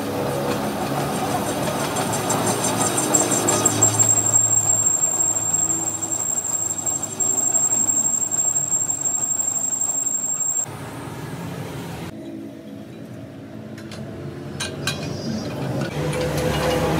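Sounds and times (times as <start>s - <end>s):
metal lathe cutting steel: 0.6s - 10.6s
high-pitched squeal: 1.4s - 10.7s.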